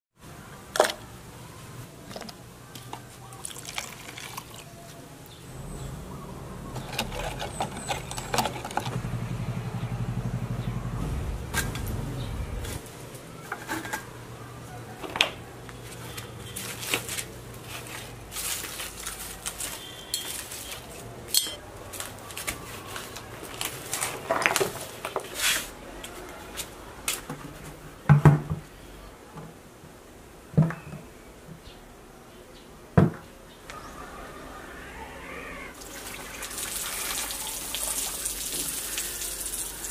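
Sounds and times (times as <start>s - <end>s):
low steady hum: 0.2s - 18.5s.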